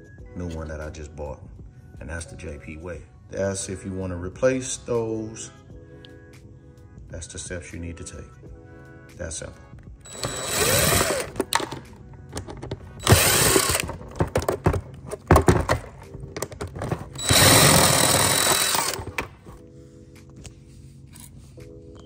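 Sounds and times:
cordless drill motor: 0:10.1 - 0:11.4, 0:13.0 - 0:14.0, 0:17.2 - 0:19.4
knocks and clatters: 0:11.3 - 0:17.5.

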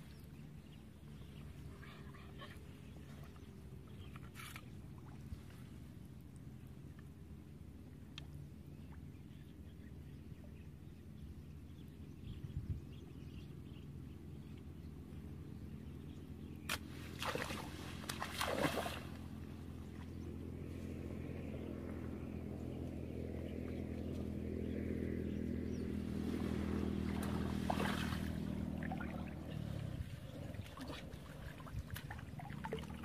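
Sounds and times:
distant engine hum: 0:00.0 - 0:33.0
water splashing as person wades: 0:16.8 - 0:20.1, 0:26.2 - 0:33.0.

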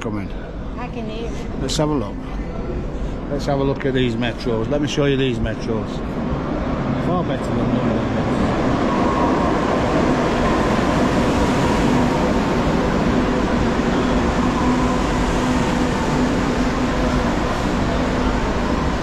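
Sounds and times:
faint steady whine: 0:00.0 - 0:19.0
subway train rumbling: 0:00.0 - 0:19.0.

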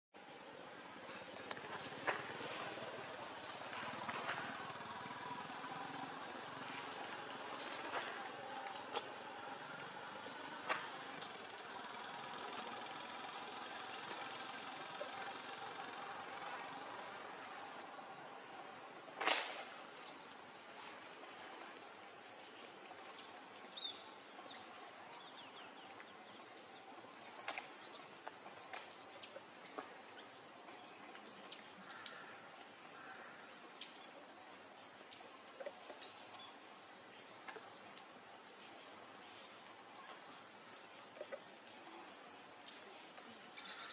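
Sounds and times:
sharp click: 0:19.2 - 0:19.7.

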